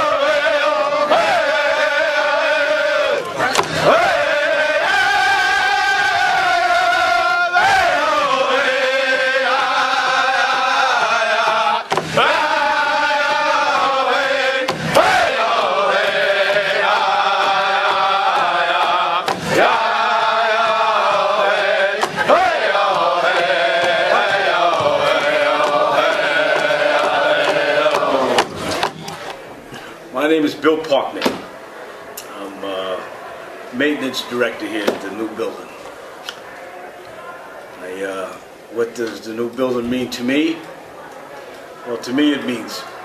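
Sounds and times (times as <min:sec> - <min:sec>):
voices chanting: 0:00.0 - 0:43.0.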